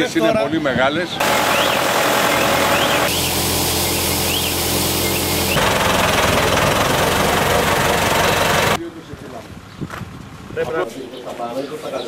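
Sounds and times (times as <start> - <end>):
tractor diesel engine running: 1.2 - 8.8.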